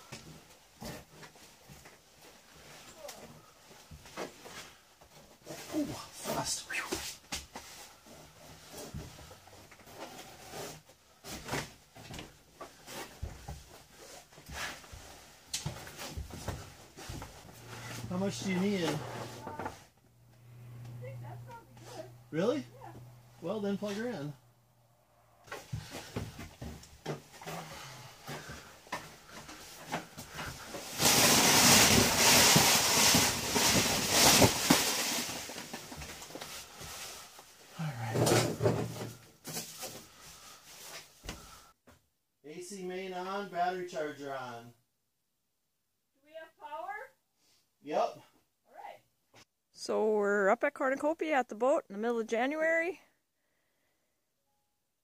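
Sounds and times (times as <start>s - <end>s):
close rustling of fabric: 29.2s - 37.6s.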